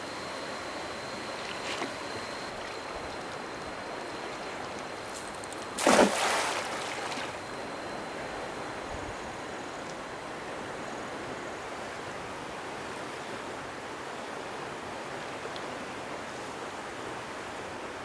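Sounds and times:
flowing river water: 0.3 - 18.0
loud splash: 5.8 - 7.4.

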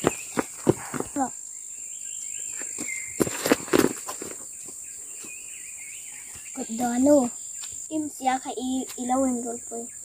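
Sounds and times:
footsteps on gravel: 0.0 - 1.3, 2.5 - 5.4
insects droning: 0.0 - 10.0.

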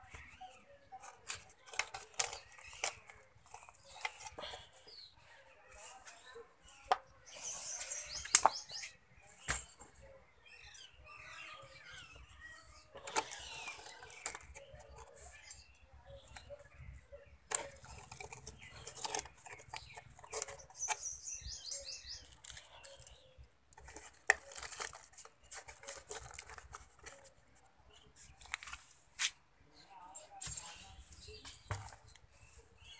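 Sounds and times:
plastic pot sleeve crinkling: 17.5 - 23.2, 23.8 - 27.3.

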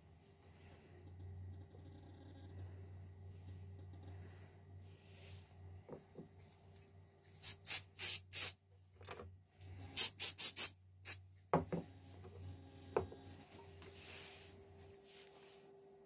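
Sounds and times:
spray can hissing: 7.4 - 8.6, 10.0 - 11.2.

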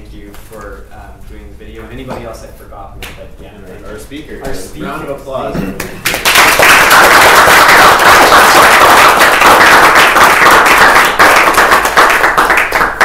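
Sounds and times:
crowd applauding: 5.8 - 13.0.

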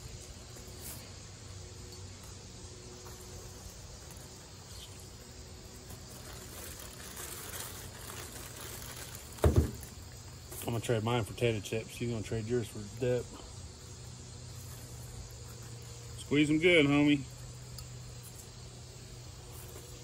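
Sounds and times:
insects buzzing: 0.0 - 20.0
juice spattering into plastic bag: 5.9 - 10.2
loud thump: 9.4 - 9.8.

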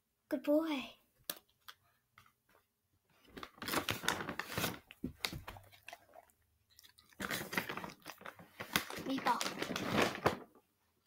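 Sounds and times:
dog crunching and rustling: 3.4 - 10.4.

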